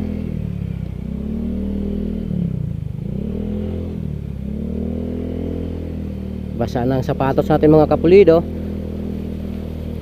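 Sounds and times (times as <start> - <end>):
motorcycle engine running slowly: 0.0 - 10.0.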